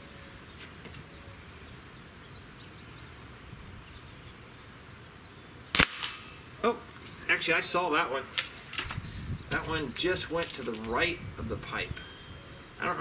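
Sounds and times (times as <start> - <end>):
air rifle shot: 5.7 - 6.3.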